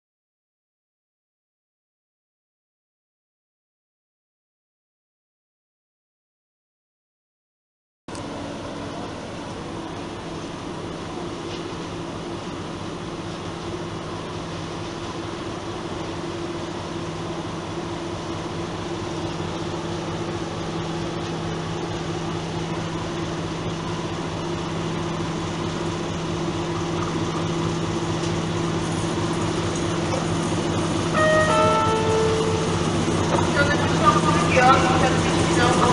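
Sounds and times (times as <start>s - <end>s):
diesel locomotive engine humming: 8.1s - 35.9s.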